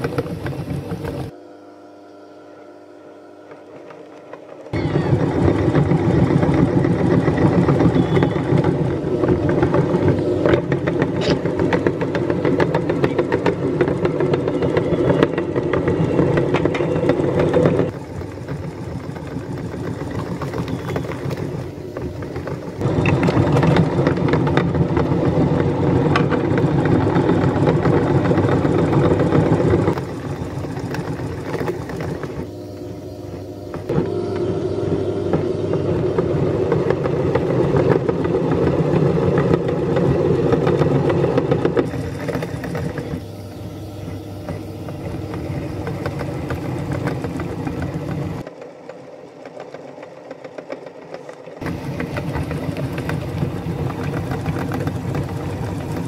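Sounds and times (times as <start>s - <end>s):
meat grinder grinding: 0.0s - 56.0s.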